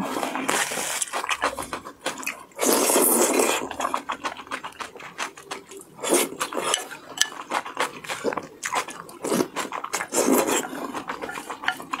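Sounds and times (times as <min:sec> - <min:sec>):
slurping noodles: 0:00.0 - 0:12.0
chewing and smacking: 0:00.3 - 0:12.0.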